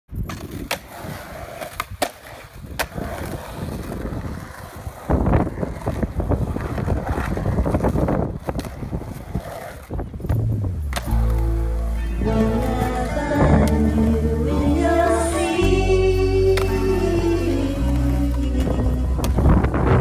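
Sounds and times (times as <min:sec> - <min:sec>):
skateboard wheels rolling on concrete: 0:00.1 - 0:20.0
skateboard clacks: 0:00.2 - 0:11.4.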